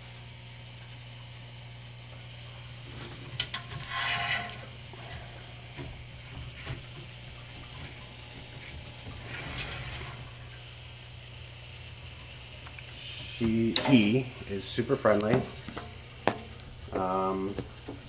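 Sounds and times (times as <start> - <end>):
steady low hum: 0.0 - 18.0
water trickling and splashing: 2.0 - 18.0
splashing or rustling bursts: 2.8 - 11.0.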